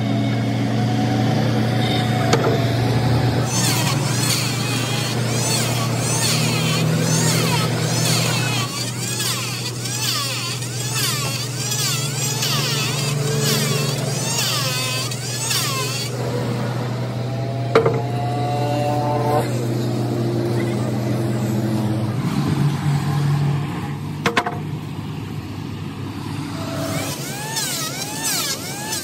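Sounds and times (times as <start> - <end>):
low motor hum: 0.0 - 29.0
sharp knocks: 17.7 - 18.2, 24.2 - 24.7.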